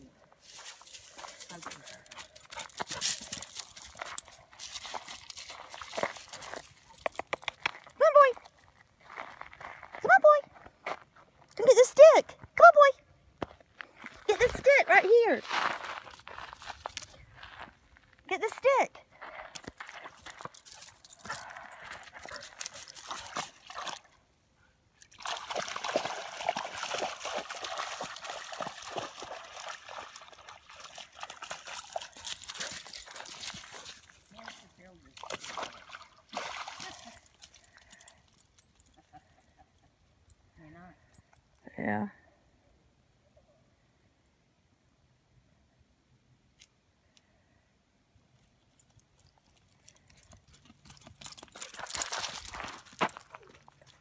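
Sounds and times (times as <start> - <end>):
footsteps crunching dry leaves: 0.4 - 6.7, 15.4 - 17.8
dog splashing through water: 25.1 - 37.4.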